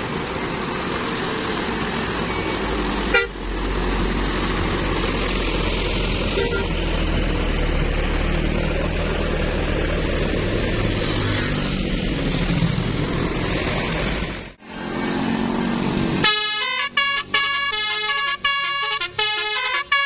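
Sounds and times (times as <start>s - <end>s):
bus engine rumble and road noise: 0.0s - 20.0s
multi-tone bus horn tune: 3.0s - 3.4s, 6.3s - 6.9s, 16.2s - 20.0s.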